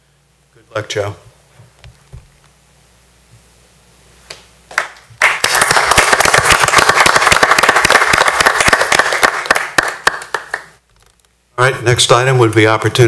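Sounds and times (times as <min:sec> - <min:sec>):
people applauding: 0:04.7 - 0:10.8.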